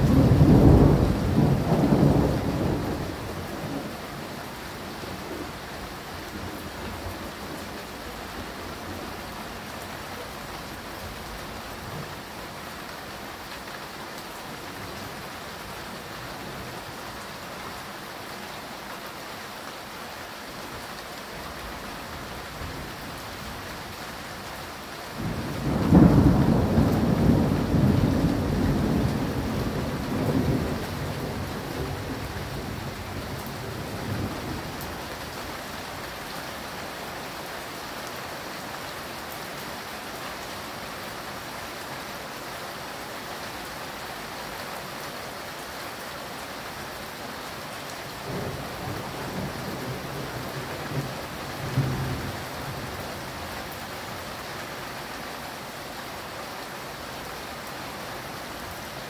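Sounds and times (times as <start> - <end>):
thunder rumbling: 0.0 - 4.0, 25.2 - 34.8
steady rain: 0.0 - 59.0.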